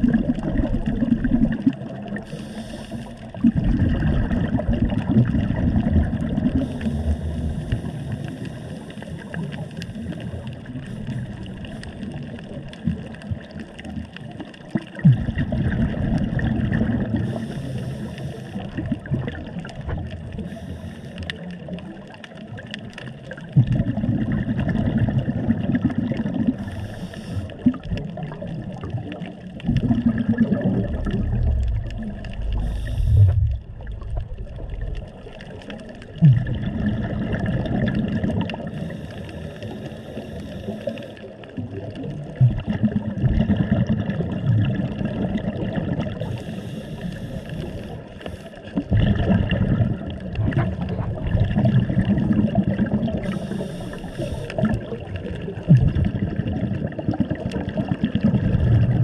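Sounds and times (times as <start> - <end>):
regulator bubbles gurgling: 0.0 - 59.0.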